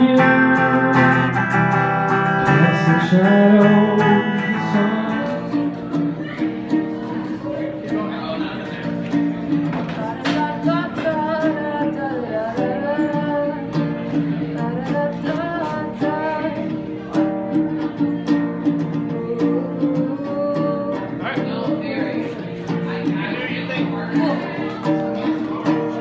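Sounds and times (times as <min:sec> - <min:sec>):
ukulele strumming: 0:00.0 - 0:26.0
woman singing: 0:02.4 - 0:08.0, 0:09.7 - 0:23.4.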